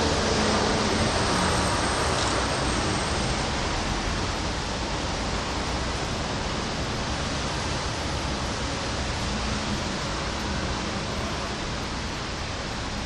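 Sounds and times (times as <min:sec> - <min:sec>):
steady rainfall: 0:00.0 - 0:13.0.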